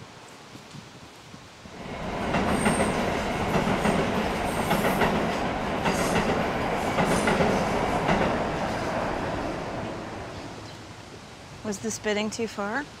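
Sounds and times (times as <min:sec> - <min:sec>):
train wheels rumbling: 0:01.7 - 0:10.7.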